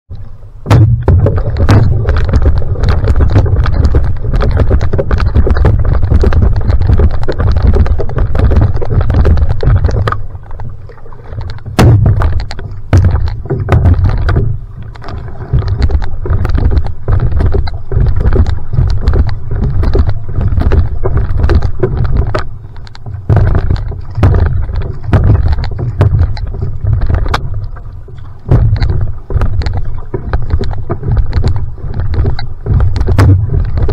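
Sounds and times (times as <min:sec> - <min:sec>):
paddle splashing in water: 0:00.1 - 0:33.9
water slapping hull: 0:00.1 - 0:33.9
wind rumble on microphone: 0:00.1 - 0:33.9.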